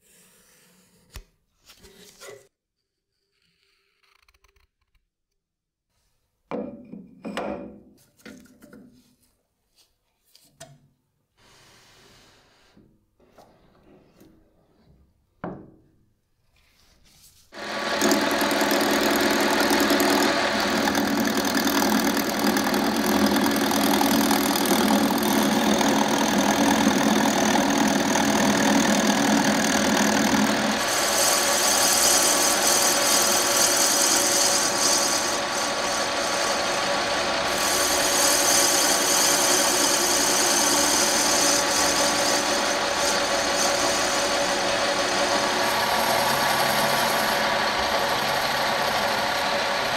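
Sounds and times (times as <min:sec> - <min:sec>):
lathe cutting wood: 0:17.6 - 0:49.9.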